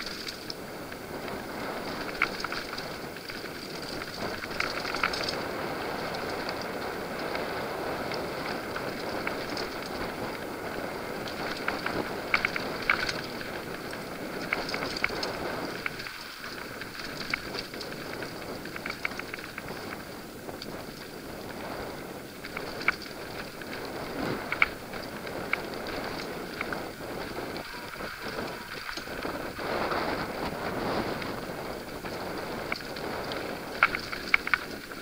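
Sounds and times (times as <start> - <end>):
bike clicks and rattles: 0.0 - 35.0
bike tyres rumbling on dirt: 0.0 - 35.0.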